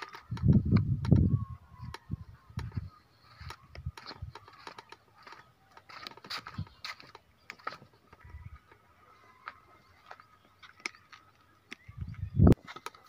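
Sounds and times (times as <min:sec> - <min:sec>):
footsteps on rock: 0:02.6 - 0:08.8, 0:09.4 - 0:13.0.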